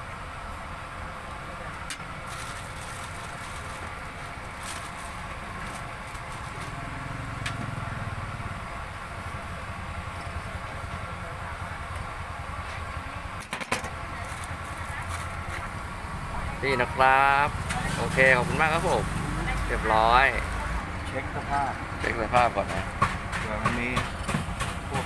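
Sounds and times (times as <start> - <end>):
roadside traffic: 0.0 - 25.0
vehicle passing: 2.4 - 11.3, 14.2 - 25.0.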